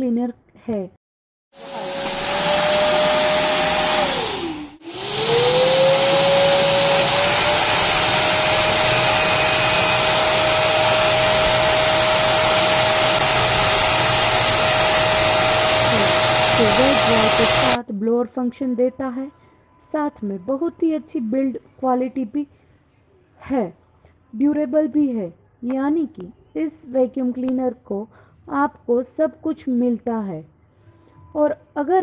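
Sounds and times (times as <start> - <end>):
vacuum cleaner running: 1.6 - 17.8.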